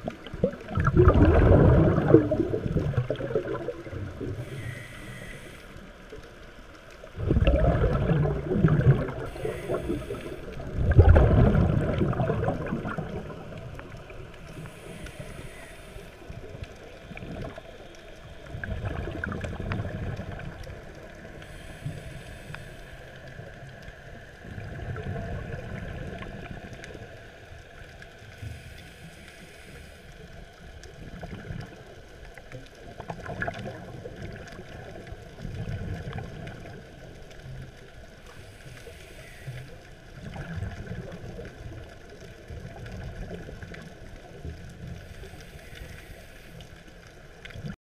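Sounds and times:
exhaled bubbles gurgling: 0:00.0 - 0:05.6, 0:07.0 - 0:27.9, 0:30.8 - 0:46.0, 0:46.6 - 0:47.8
regulator inhale hiss: 0:04.2 - 0:06.3, 0:09.2 - 0:10.7, 0:14.4 - 0:16.6, 0:21.2 - 0:24.3, 0:28.3 - 0:30.6, 0:38.2 - 0:40.0, 0:45.0 - 0:47.0.

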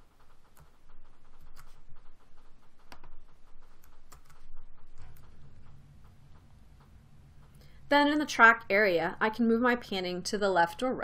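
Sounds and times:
low room hum: 0:00.0 - 0:11.0
mouse and keyboard clicks: 0:00.2 - 0:06.2.

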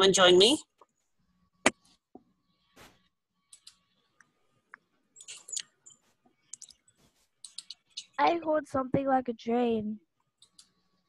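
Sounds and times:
computer keys clicking: 0:03.5 - 0:03.8, 0:07.4 - 0:08.0, 0:10.4 - 0:10.7.

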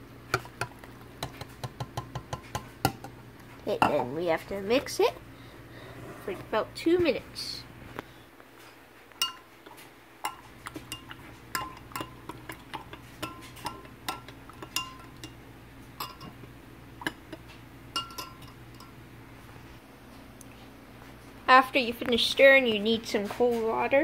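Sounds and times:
spoon clinking against glass: 0:09.2 - 0:09.4, 0:13.2 - 0:15.4, 0:16.0 - 0:16.4, 0:17.0 - 0:19.0.

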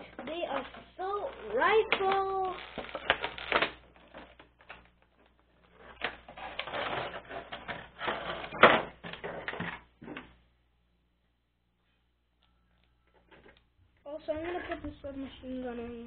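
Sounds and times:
plastic packaging crinkling: 0:00.6 - 0:09.6.

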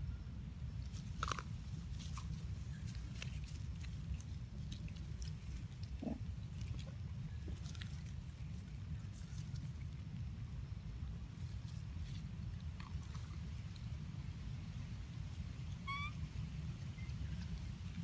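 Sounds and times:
steady low rumble: 0:00.0 - 0:18.0
monkeys chewing fruit crunching: 0:00.9 - 0:10.3.

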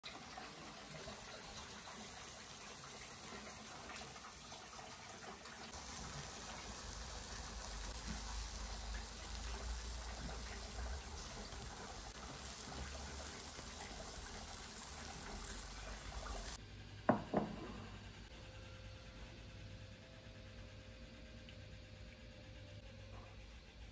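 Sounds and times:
skewers sizzling over charcoal grill: 0:00.0 - 0:16.6
glass bowl knocks on worktop: 0:17.1 - 0:17.7.

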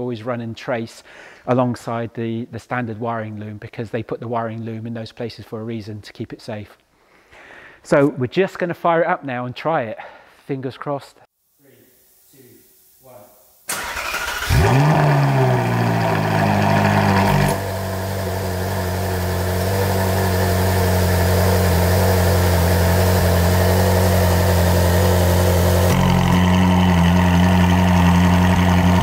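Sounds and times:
sports car engine idling: 0:14.5 - 0:29.0.

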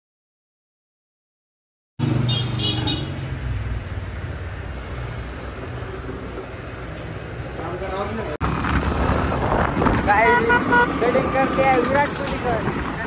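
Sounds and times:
road traffic engine rumble: 0:02.0 - 0:13.0
high horn toot: 0:02.2 - 0:03.2, 0:10.2 - 0:11.2.

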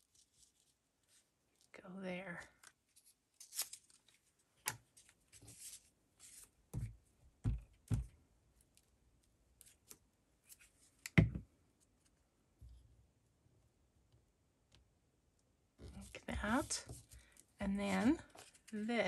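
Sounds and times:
paper rustling: 0:02.9 - 0:04.3, 0:04.9 - 0:06.5, 0:15.9 - 0:18.8.

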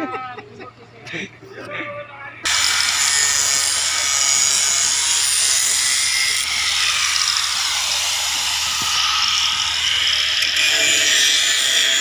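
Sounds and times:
angle grinder grinding steel: 0:02.5 - 0:12.0.

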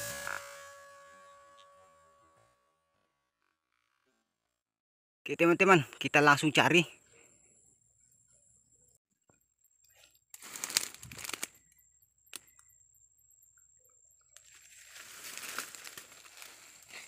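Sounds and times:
leaves and twigs crackling: 0:10.3 - 0:12.6, 0:14.4 - 0:17.0
footsteps through undergrowth: 0:10.4 - 0:11.6, 0:14.4 - 0:17.0
twig snapping: 0:10.4 - 0:11.6, 0:12.3 - 0:12.6.

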